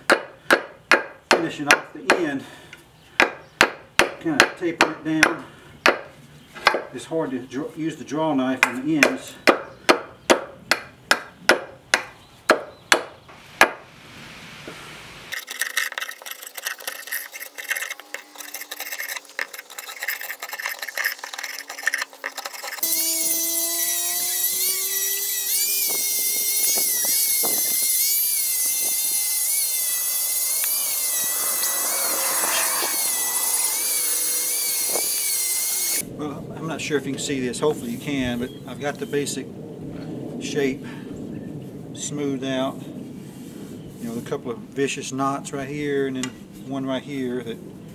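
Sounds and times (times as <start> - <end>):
hatchet chopping wood: 0.0 - 2.3, 3.2 - 6.9, 8.6 - 13.8, 34.8 - 36.0
draw knife scraping bark: 15.3 - 23.2
electric power sander whine: 22.7 - 36.1.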